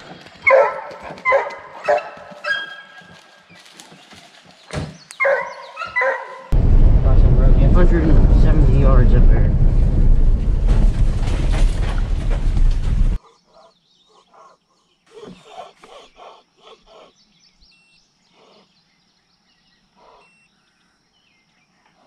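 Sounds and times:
truck rumbling on gravel: 0:06.6 - 0:13.2
faint bird chirps: 0:13.2 - 0:22.0.

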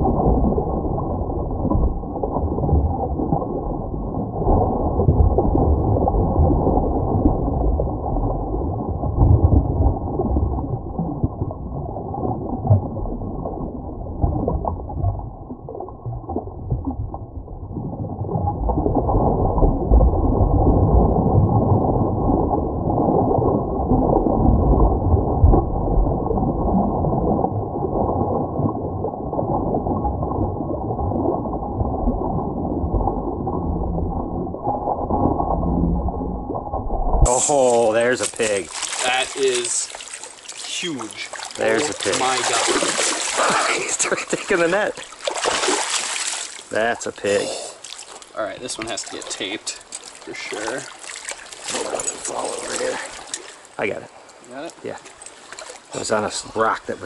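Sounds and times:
muffled rushing stream water: 0:37.2 - 0:57.0.

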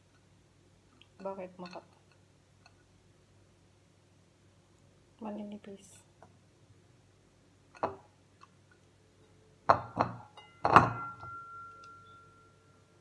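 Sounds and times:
bowl ringing: 0:09.2 - 0:13.0.

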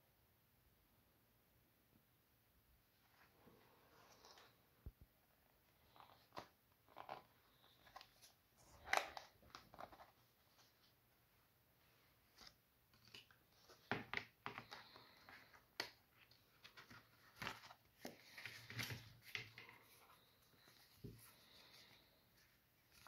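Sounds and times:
paper rustling: 0:12.2 - 0:23.0.

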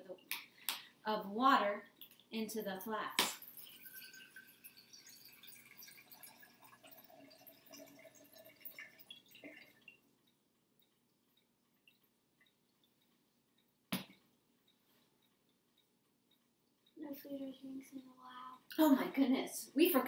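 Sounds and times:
water pouring into flask: 0:03.4 - 0:10.1.

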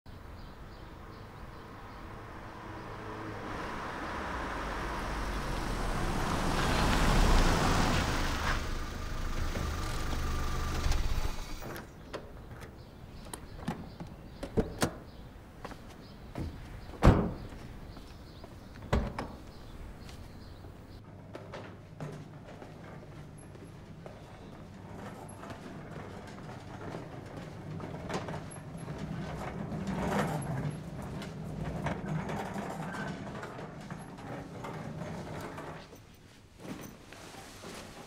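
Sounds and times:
van engine: 0:03.2 - 0:12.0
van doors clicking and clunking: 0:07.5 - 0:15.2, 0:16.4 - 0:17.8, 0:18.8 - 0:20.0
van door slam: 0:17.0 - 0:17.6.

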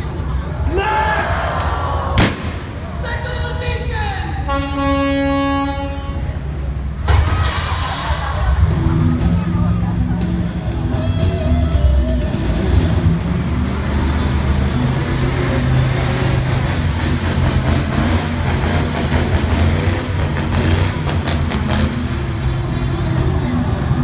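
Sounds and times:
sharp cracks: 0:01.6 - 0:02.9.

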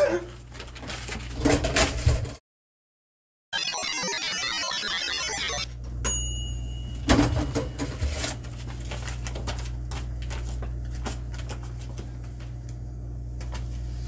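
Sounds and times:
air fryer beep: 0:03.6 - 0:08.1
air fryer low hum: 0:05.8 - 0:14.0.

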